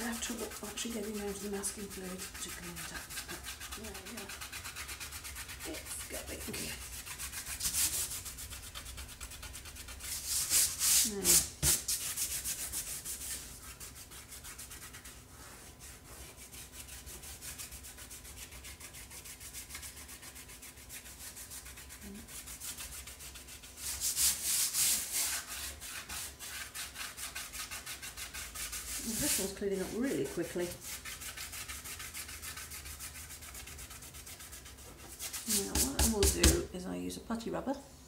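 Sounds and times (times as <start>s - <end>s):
fingers rubbing paper: 0.0s - 15.2s, 24.2s - 36.6s.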